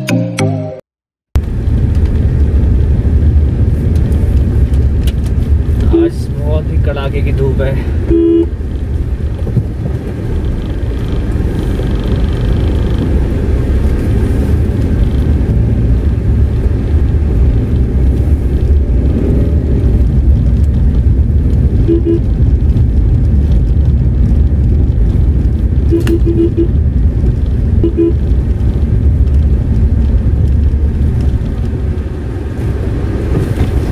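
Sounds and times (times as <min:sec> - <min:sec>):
engine and tyre rumble: 0:01.3 - 0:33.9
car horn toot: 0:08.1 - 0:08.5, 0:21.9 - 0:22.3, 0:25.9 - 0:26.8, 0:27.8 - 0:28.2.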